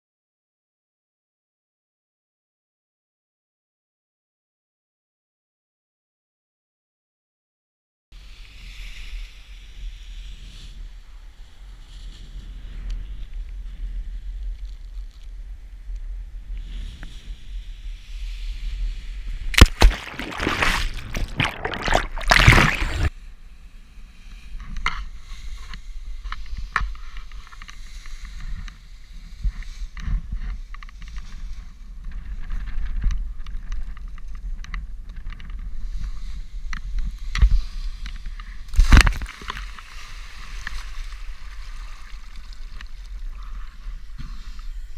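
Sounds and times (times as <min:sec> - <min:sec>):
splash into water: 0:19.5 - 0:23.1, 0:38.7 - 0:43.1
water sloshing: 0:19.6 - 0:23.1.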